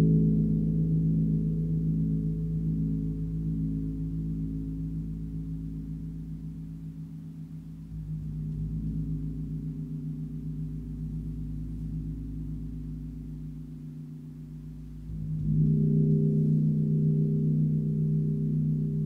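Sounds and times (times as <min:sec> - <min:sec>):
large gong humming: 0:14.6 - 0:19.0.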